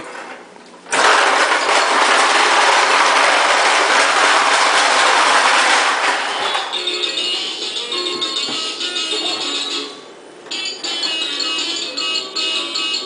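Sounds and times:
toy lawn mower clattering on tile: 0:00.9 - 0:06.7.

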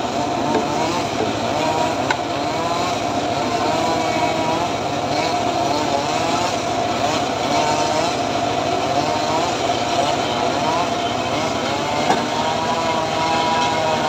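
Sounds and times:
engine-driven circular saw cutting wood: 0:00.0 - 0:14.0.

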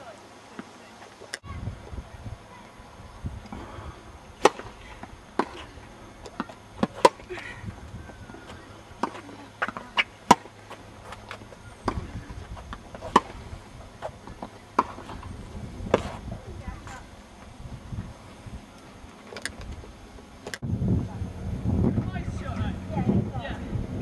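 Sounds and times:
tennis ball hits and bounces: 0:04.4 - 0:07.3, 0:08.3 - 0:13.4, 0:14.0 - 0:15.3.

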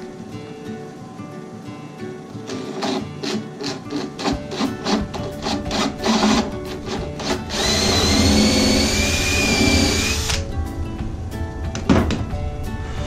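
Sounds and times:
acoustic guitar music: 0:00.0 - 0:13.0
drill boring into wood: 0:02.8 - 0:10.4.

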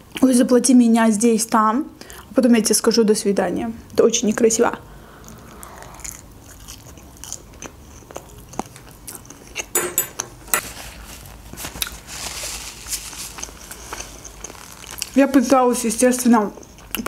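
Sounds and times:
chewing with wet mouth sounds: 0:05.2 - 0:09.7, 0:13.3 - 0:15.4, 0:16.5 - 0:17.0.

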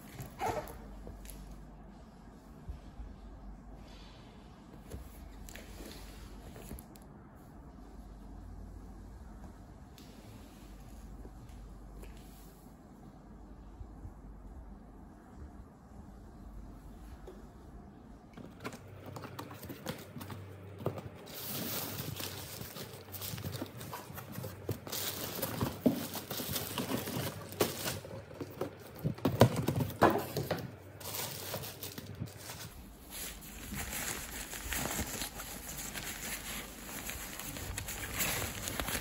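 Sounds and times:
plastic crinkling and rustling: 0:18.4 - 0:39.0.

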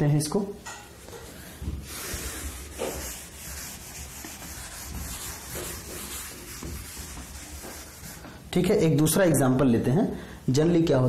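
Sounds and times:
duster rubbing on blackboard: 0:01.8 - 0:08.4.

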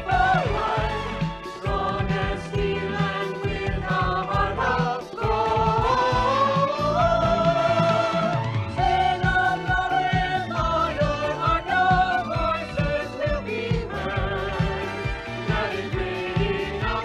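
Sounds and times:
voices singing over a beat: 0:00.0 - 0:17.0.

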